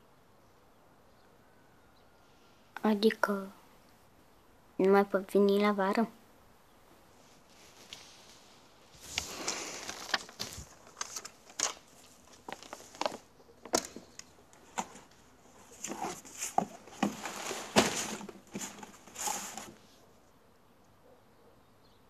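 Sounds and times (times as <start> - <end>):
rustles and crinkles in cardboard box: 7.2 - 20.1.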